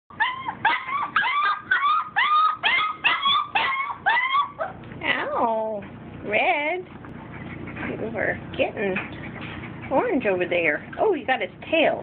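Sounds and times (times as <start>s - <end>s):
puppy whining yips: 0.1s - 4.8s.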